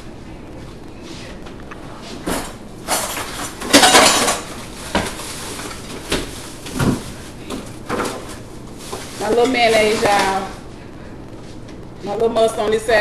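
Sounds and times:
cutlery and dishes clattering: 0:02.4 - 0:04.5.

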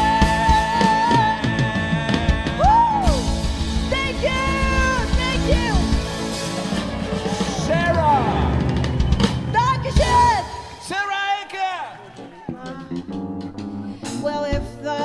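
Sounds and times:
woman singing: 0:00.0 - 0:05.9, 0:09.6 - 0:10.7, 0:14.0 - 0:15.0
acoustic guitar: 0:00.0 - 0:10.4
drum kit: 0:00.0 - 0:15.0.

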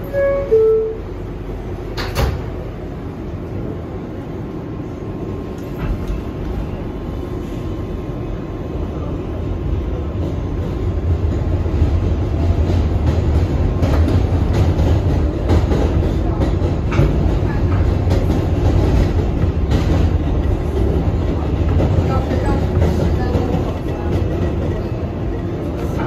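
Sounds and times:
train doors sliding shut: 0:00.0 - 0:02.9, 0:05.5 - 0:07.7
train motor and wheel rumble: 0:00.0 - 0:26.0.

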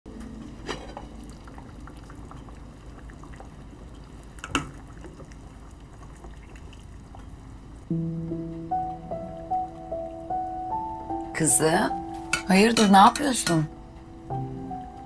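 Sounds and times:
soup simmering: 0:00.1 - 0:13.1
metal cookware clinking: 0:00.6 - 0:01.2, 0:12.2 - 0:13.7.

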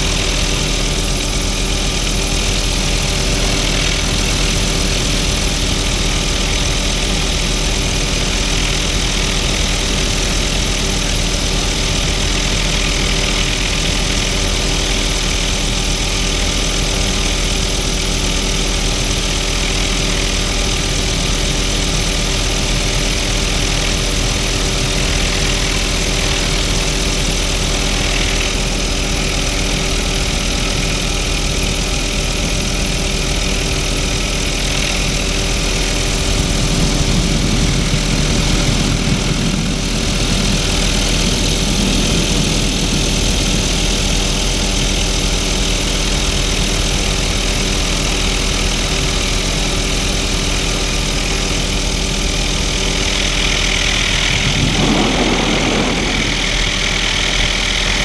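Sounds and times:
helicopter engine and rotor: 0:00.0 - 0:58.0
wind rush: 0:35.5 - 0:45.0, 0:53.8 - 0:58.0.

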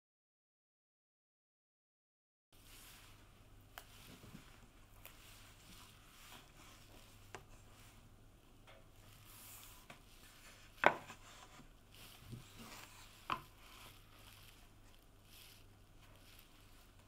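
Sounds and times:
wood rubbing and tapping: 0:09.8 - 0:13.6.

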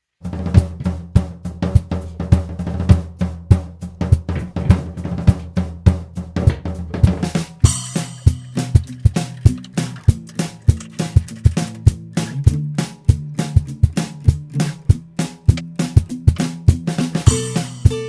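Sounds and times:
drum kit playing a steady beat: 0:00.2 - 0:18.0
bass line: 0:00.3 - 0:18.0.

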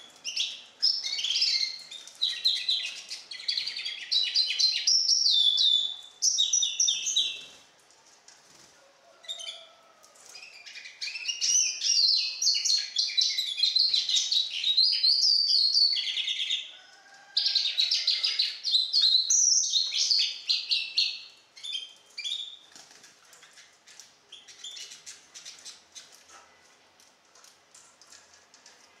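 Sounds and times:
bird singing high twittering trills: 0:00.0 - 0:07.5, 0:10.4 - 0:16.7, 0:17.6 - 0:22.6.

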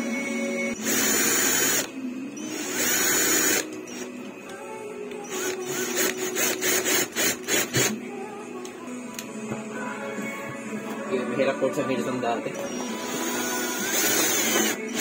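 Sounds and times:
cordless drill driving screw: 0:00.8 - 0:04.1, 0:05.3 - 0:08.0, 0:12.6 - 0:15.0.

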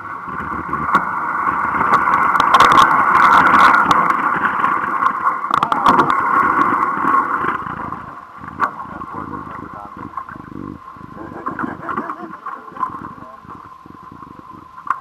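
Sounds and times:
motorboat motor running: 0:00.0 - 0:15.0
ice cracking and scraping: 0:00.3 - 0:08.0.

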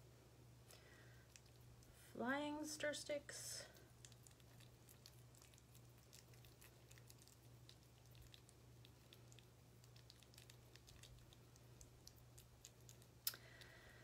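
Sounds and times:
steady low hum: 0:00.0 - 0:14.0
faint small clicks and ticks: 0:03.8 - 0:13.8.

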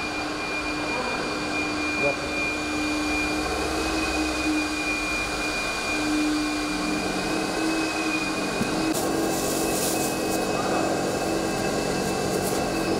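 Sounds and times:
vacuum motor whine: 0:00.0 - 0:12.9
wand hissing over carpet: 0:08.5 - 0:11.0, 0:12.0 - 0:12.9.

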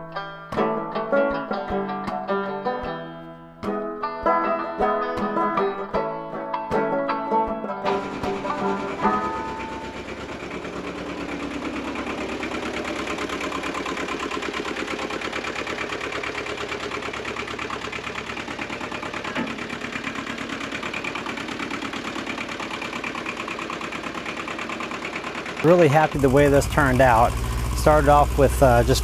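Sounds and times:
tractor diesel engine idling: 0:07.8 - 0:29.0.

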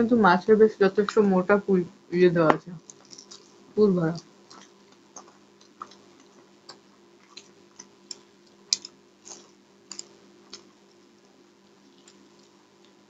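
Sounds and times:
faint steady hum: 0:00.0 - 0:13.0
chewing mouth clicks and smacks: 0:02.9 - 0:03.6, 0:04.5 - 0:10.7, 0:11.8 - 0:13.0.

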